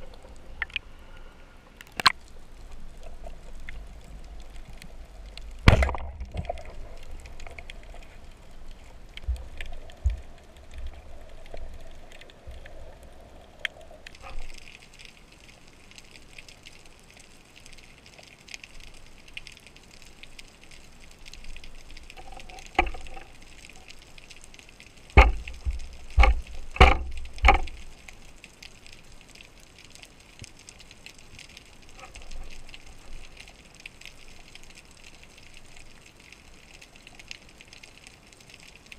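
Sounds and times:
steady underwater hiss: 0.0s - 38.9s
sharp knocks: 25.2s - 27.6s.

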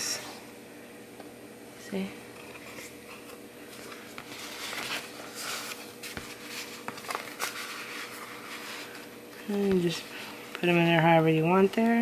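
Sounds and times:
cards and paper rustling: 2.4s - 10.8s.

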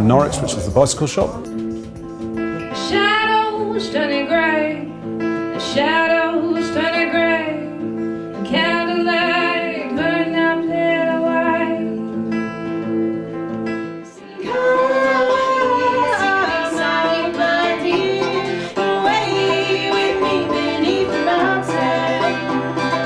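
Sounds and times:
woman singing into microphone: 2.7s - 4.9s, 5.6s - 13.3s, 14.1s - 23.0s
guitar held notes: 12.2s - 23.0s.

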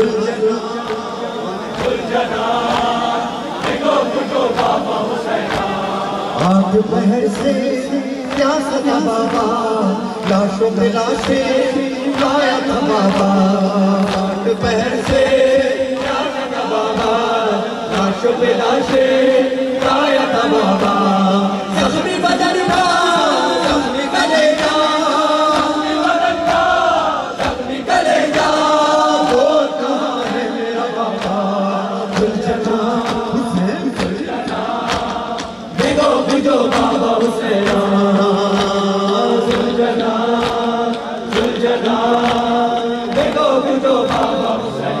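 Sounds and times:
men chanting over microphone: 0.0s - 45.0s
chest-beating slaps: 33.0s - 37.9s, 38.5s - 44.6s.

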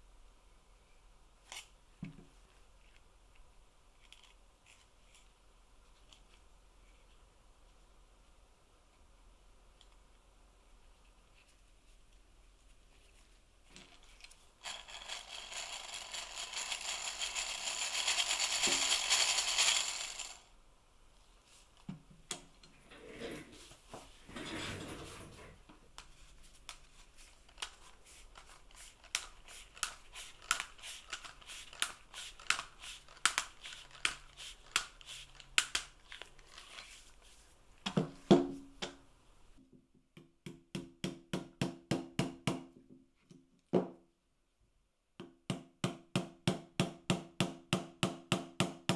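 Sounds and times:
hand-crank gearing whirring and rattling: 14.6s - 20.4s.

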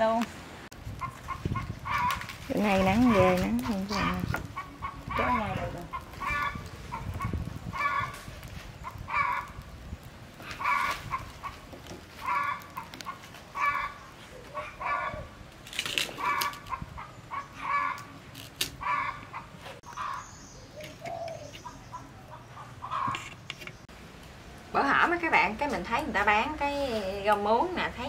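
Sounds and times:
noisy rustle: 0.0s - 17.0s
chicken calling: 0.9s - 9.6s, 10.4s - 15.4s, 16.1s - 18.2s, 18.8s - 23.4s.

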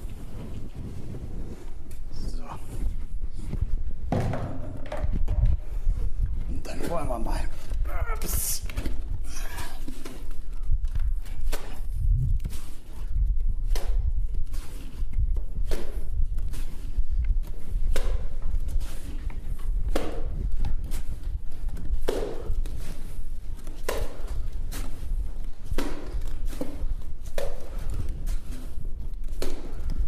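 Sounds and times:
low rumble: 11.8s - 12.5s
cement render slapping on wall: 22.0s - 23.0s.

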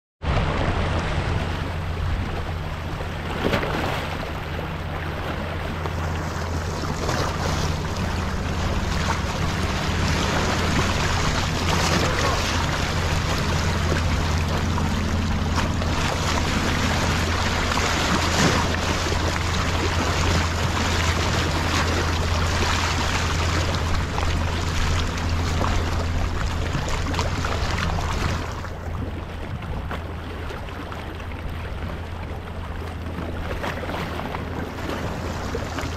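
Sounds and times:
sea swell splashing over rock: 0.2s - 35.9s
steady low hum: 0.3s - 35.9s.

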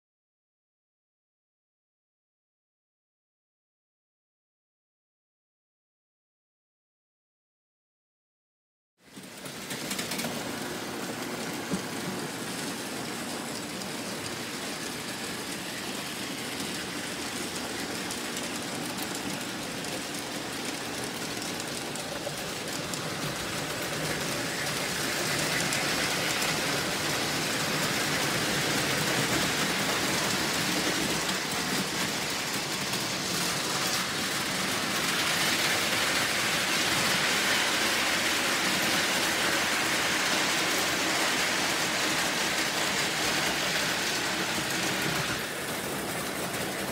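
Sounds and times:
model trains whirring on track: 9.0s - 46.9s.

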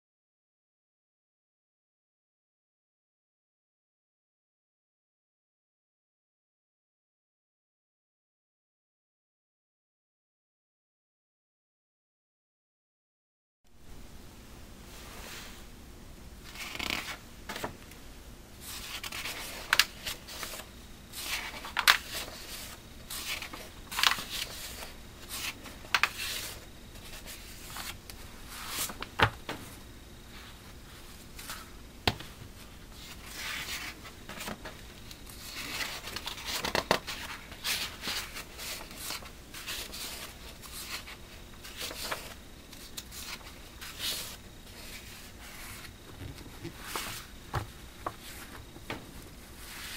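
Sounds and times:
magazine pages rustling: 16.5s - 17.8s, 18.6s - 29.7s, 30.5s - 49.9s.

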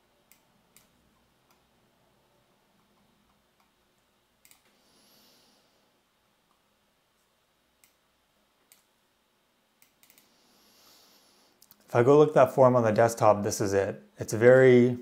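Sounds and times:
computer mouse clicks: 0.2s - 1.7s, 2.8s - 4.8s, 7.2s - 8.0s, 8.6s - 8.9s, 9.8s - 10.3s.

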